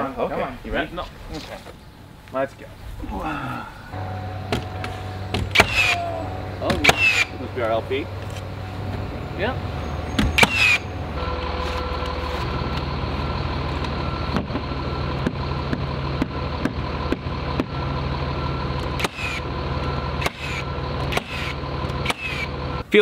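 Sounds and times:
steady engine-like drone: 0.0s - 22.9s
nailer firing nails: 5.4s - 6.0s, 6.8s - 7.3s, 20.2s - 22.5s.

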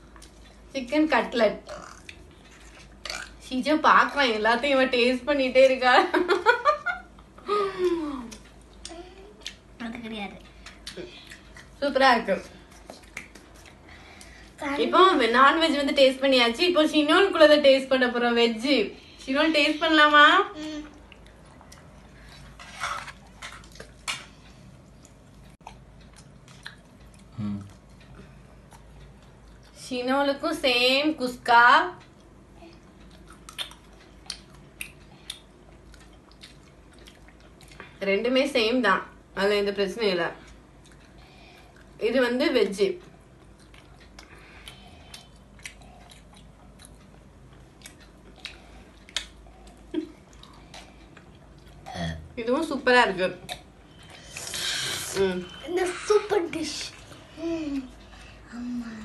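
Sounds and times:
people chewing: 0.0s - 0.7s, 1.7s - 3.4s, 6.9s - 11.8s, 12.4s - 14.6s, 20.6s - 29.8s, 32.0s - 38.0s, 40.4s - 42.0s, 43.0s - 52.0s, 53.4s - 59.0s
mouth clicks and smacks: 12.8s - 13.8s, 33.1s - 37.8s, 47.8s - 51.8s.

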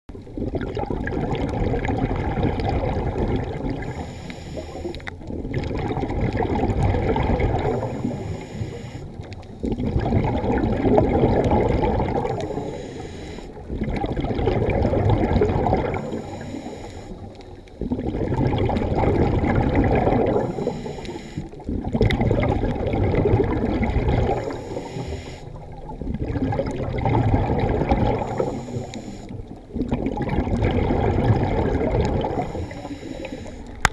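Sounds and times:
diver breathing through regulator: 3.8s - 5.1s, 7.6s - 9.3s, 12.2s - 13.7s, 15.8s - 17.9s, 20.2s - 21.6s, 24.2s - 25.6s, 28.1s - 29.4s, 32.2s - 33.8s.

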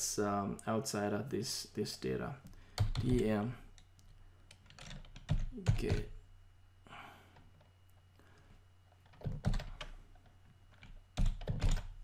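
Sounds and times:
faint low hum: 0.0s - 12.0s
keyboard typing: 2.8s - 6.1s, 8.9s - 12.0s.

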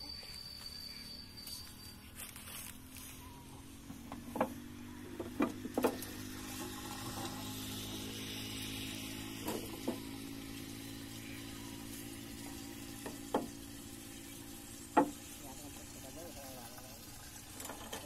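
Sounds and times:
water pouring into pipe: 6.0s - 18.0s.

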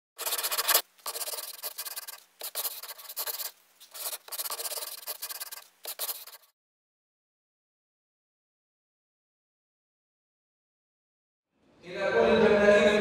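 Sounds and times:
pencil scratching on paper: 0.2s - 6.5s.

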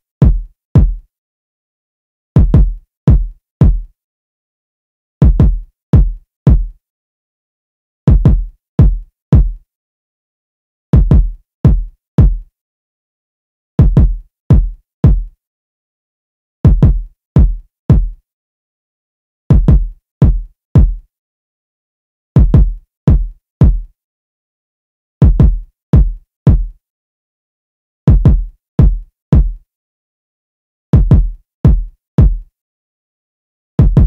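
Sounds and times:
electronic kick drum loop: 0.2s - 1.0s, 2.4s - 3.9s, 5.2s - 6.7s, 8.1s - 9.6s, 11.0s - 12.4s, 13.8s - 15.3s, 16.7s - 18.2s, 19.5s - 21.0s, 22.4s - 23.9s, 25.2s - 26.7s, 28.1s - 29.6s, 31.0s - 32.4s, 33.8s - 34.0s.

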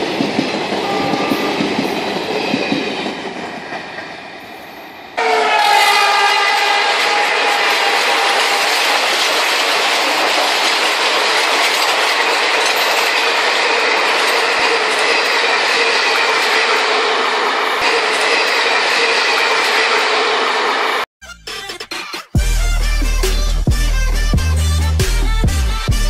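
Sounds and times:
toy train horn: 0.8s - 1.7s, 5.2s - 11.0s, 22.4s - 26.0s
toy train wheels and motor rattling: 6.6s - 16.6s.

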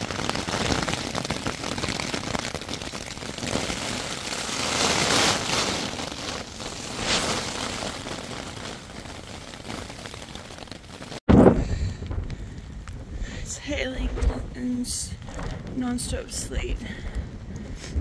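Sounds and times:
hail and sleet patter: 0.0s - 18.0s
wind buffeting microphone: 11.3s - 18.0s.

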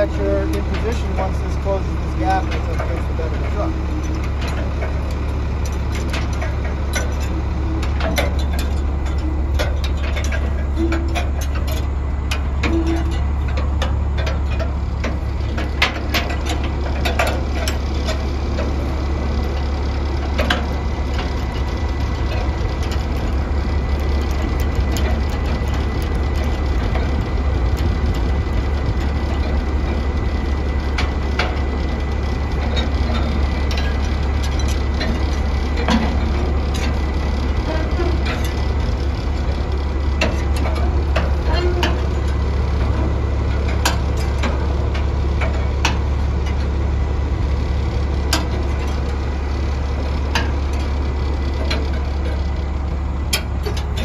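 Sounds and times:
truck engine idling: 0.0s - 54.0s.

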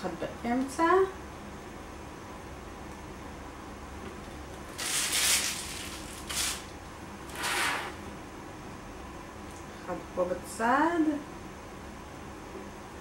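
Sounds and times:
piping bag rustling scrapes: 4.7s - 8.0s.

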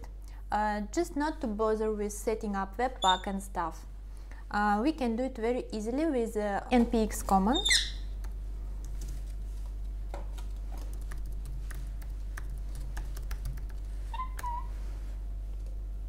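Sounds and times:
low steady hum: 0.0s - 16.0s
bird chirp: 7.6s - 8.1s.

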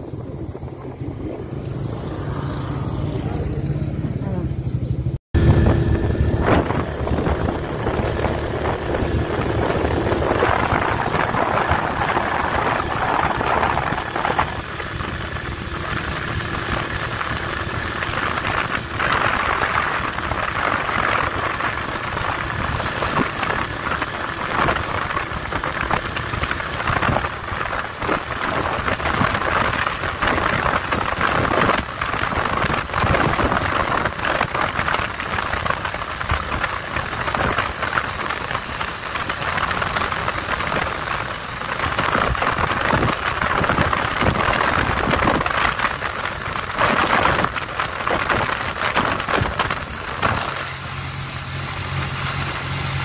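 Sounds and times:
road and wind noise: 0.0s - 53.0s
vehicle engine running: 0.0s - 53.0s.

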